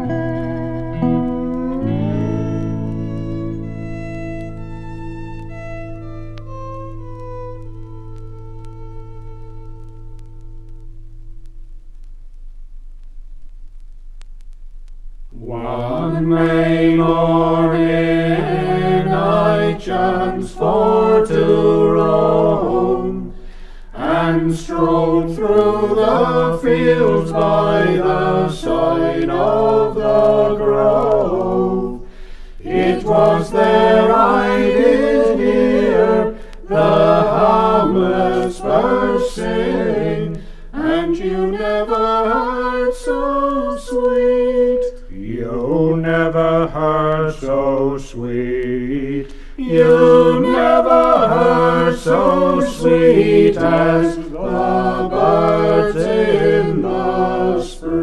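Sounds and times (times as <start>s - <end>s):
unaccompanied harmony singing: 0.0s - 1.0s, 15.4s - 58.0s
record surface clicks: 0.0s - 42.0s.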